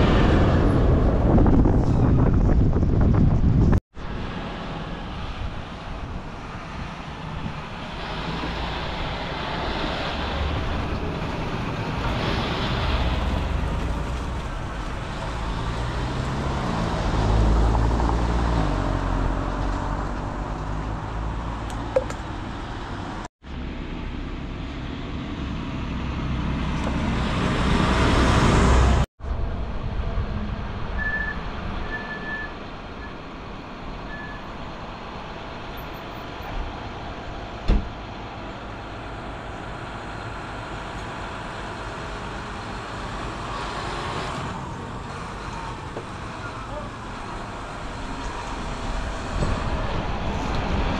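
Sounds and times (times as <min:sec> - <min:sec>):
tractor diesel engine: 0:32.9 - 0:50.9.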